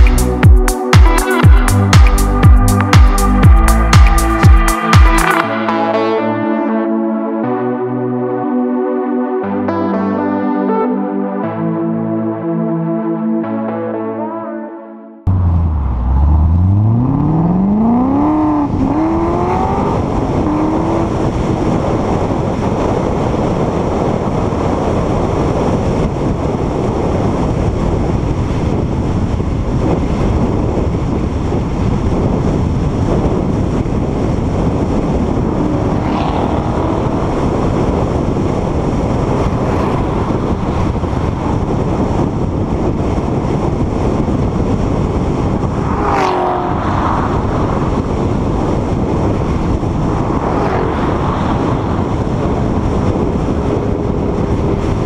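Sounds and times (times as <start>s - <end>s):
wind and road rush: 0.0s - 14.1s, 15.2s - 55.0s
car engine accelerating: 15.2s - 24.1s, 32.1s - 55.0s.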